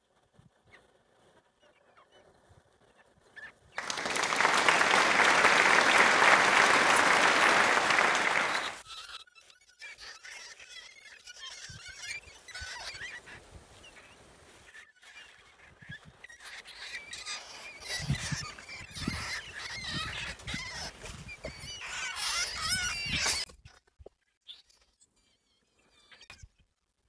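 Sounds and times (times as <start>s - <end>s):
rats squealing: 8.9s - 14.0s, 14.7s - 23.5s.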